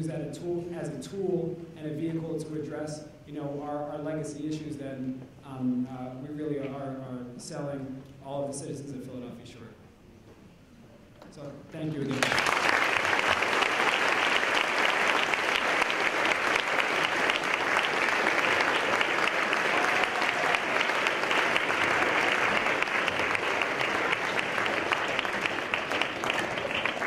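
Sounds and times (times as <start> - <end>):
audience applauding: 12.0 - 27.0.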